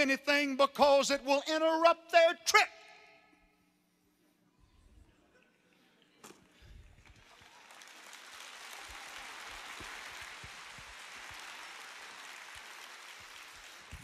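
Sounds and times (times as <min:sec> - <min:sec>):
large audience applauding: 0:06.8 - 0:14.0.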